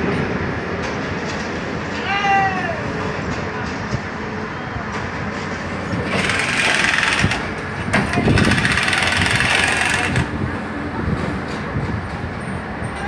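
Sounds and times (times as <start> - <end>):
machine running: 5.9 - 10.6.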